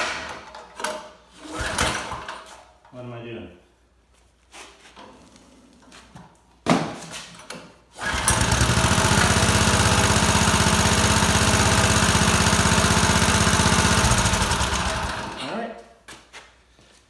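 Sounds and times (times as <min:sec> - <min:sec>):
small engine pull-started: 0:01.4 - 0:02.3, 0:08.0 - 0:15.4.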